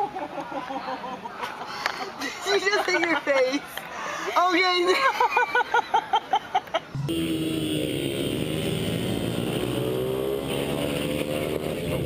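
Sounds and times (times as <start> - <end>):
woman laughing: 4.8 - 6.8
dirt bike engine running: 7.0 - 12.0.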